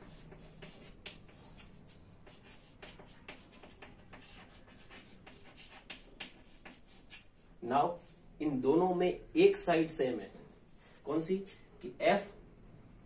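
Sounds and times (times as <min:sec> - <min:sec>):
chalk scratching on chalkboard: 0:00.0 - 0:08.2.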